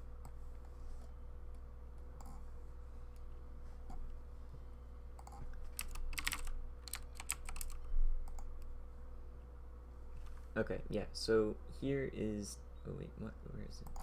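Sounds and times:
faint steady hum: 0.0s - 14.0s
keyboard typing: 5.2s - 8.6s.

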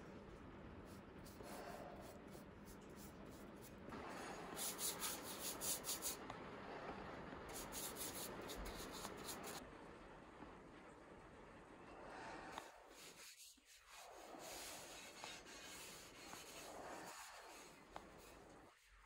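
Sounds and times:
brush rubbing on wood: 4.5s - 6.2s, 7.5s - 9.6s, 12.9s - 19.0s.

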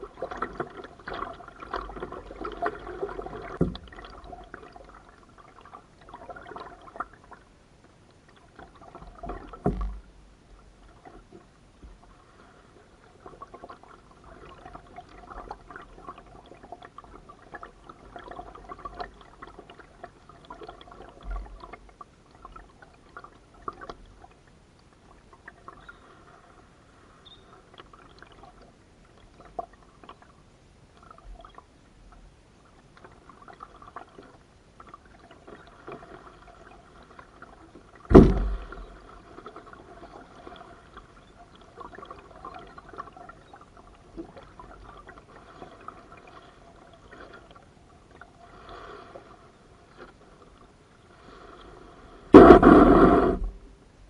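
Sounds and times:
paddle splashing in water: 35.0s - 41.1s
sharp loud thump: 38.1s - 38.8s, 52.3s - 53.6s.

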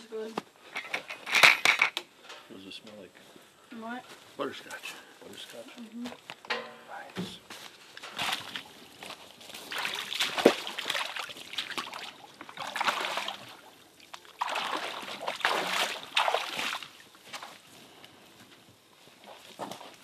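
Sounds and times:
boots wading through water: 8.1s - 17.7s.

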